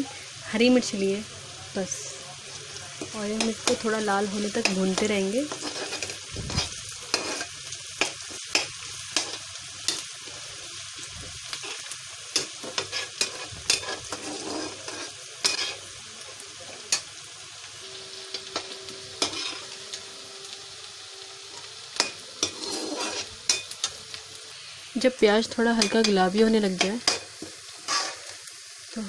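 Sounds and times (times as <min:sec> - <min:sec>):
onion sizzling in hot oil: 0:00.0 - 0:29.0
metal ladle scraping pan: 0:04.6 - 0:09.4, 0:11.6 - 0:15.8, 0:18.2 - 0:19.9, 0:22.0 - 0:23.8, 0:26.8 - 0:28.4.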